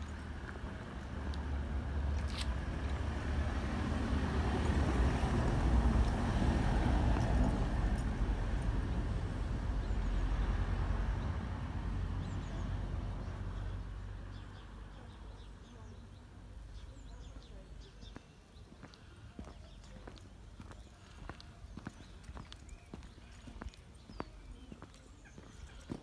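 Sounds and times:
vehicle passing by rumble: 0.0s - 15.6s.

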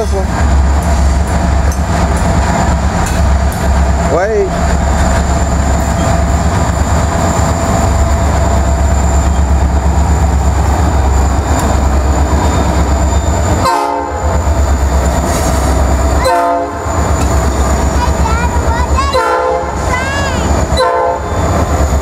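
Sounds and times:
diesel locomotives rumbling past: 0.0s - 22.0s
train horn toots: 13.6s - 14.3s, 16.2s - 16.9s, 19.1s - 19.8s, 20.8s - 21.4s.

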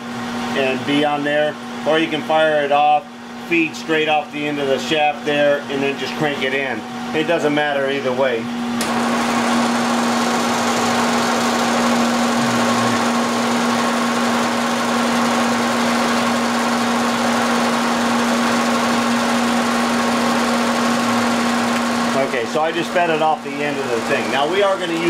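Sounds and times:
milling machine humming: 0.0s - 25.0s
high whine: 10.6s - 14.6s.

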